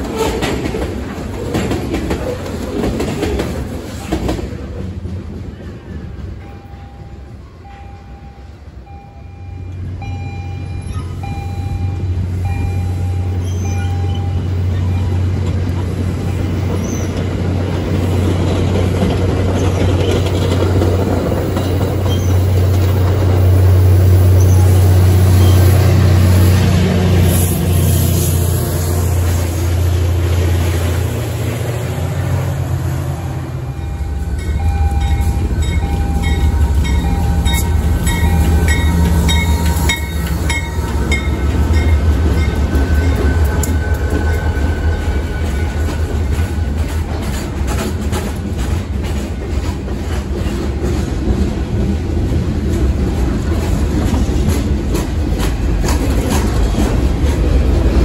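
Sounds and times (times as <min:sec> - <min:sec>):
wheels clicking over rail joints: 0:00.0 - 0:06.6, 0:13.4 - 0:24.8, 0:33.8 - 0:58.0
diesel locomotive drone: 0:00.0 - 0:58.0
freight cars rolling: 0:00.0 - 0:58.0
locomotive bell ringing: 0:06.4 - 0:15.4, 0:33.0 - 0:47.5.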